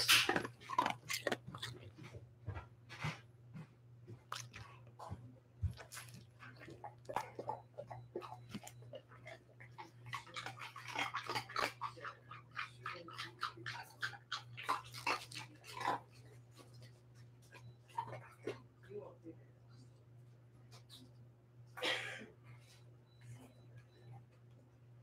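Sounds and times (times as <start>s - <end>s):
dog chewing: 0.0s - 18.6s.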